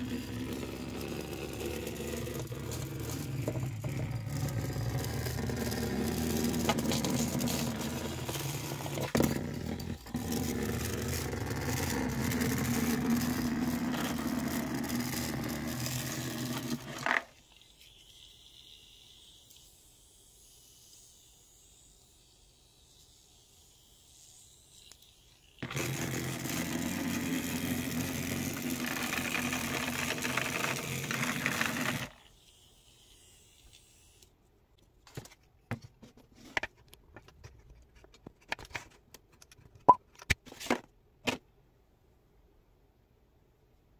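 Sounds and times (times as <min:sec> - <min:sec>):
toy vibration motor buzzing: 0:00.0 - 0:34.3.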